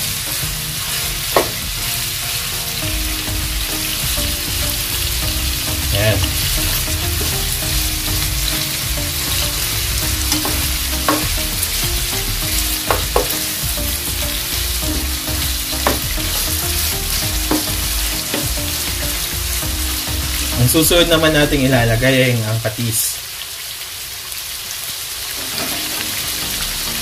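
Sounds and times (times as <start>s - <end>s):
chicken sizzling in oil: 0.0s - 27.0s
spatula knocking pan: 1.0s - 1.8s, 5.8s - 20.4s.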